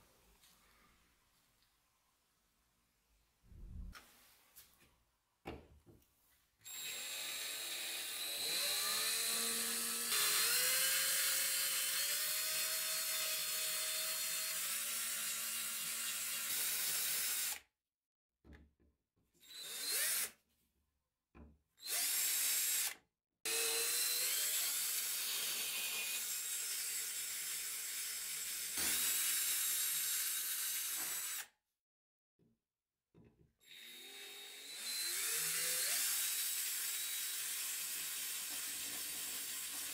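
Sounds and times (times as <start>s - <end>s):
cordless drill drilling: 6.6s - 17.6s, 19.4s - 20.3s, 21.8s - 31.5s, 33.6s - 39.9s.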